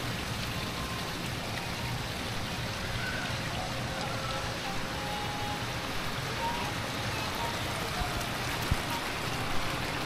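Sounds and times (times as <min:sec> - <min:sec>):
fountain jets splashing: 0:00.0 - 0:10.0.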